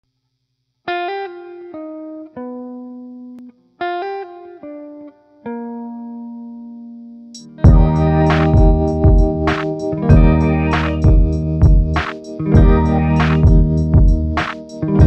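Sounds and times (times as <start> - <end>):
plucked string melody: 7.5 - 15.0.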